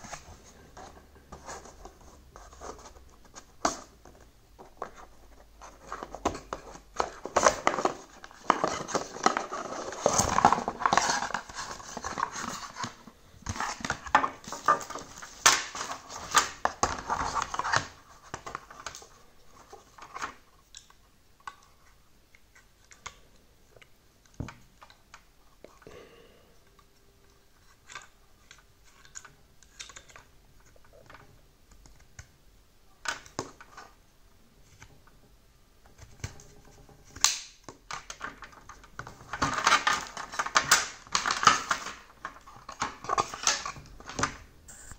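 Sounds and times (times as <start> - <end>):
packaging scraping and rustling: 5.6 - 20.4.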